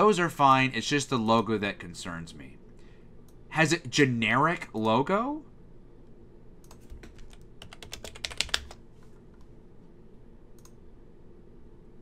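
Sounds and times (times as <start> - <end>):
computer keyboard typing: 6.7 - 8.8.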